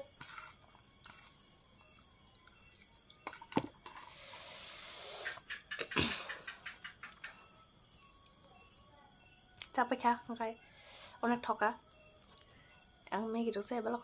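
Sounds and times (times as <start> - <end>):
breathy hiss: 4.0 - 6.5, 10.6 - 11.2.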